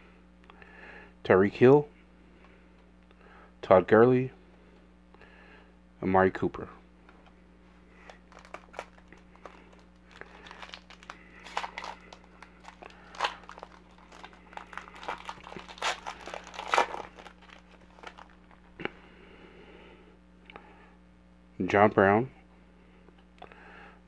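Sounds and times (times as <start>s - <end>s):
foil wrapper tearing and crinkling: 8.0s - 18.7s.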